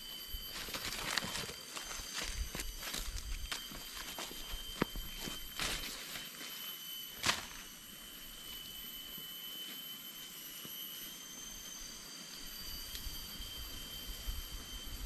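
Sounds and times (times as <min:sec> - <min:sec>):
insects droning: 0:00.0 - 0:15.0
footstep crackling in undergrowth: 0:00.5 - 0:06.6, 0:07.2 - 0:07.7.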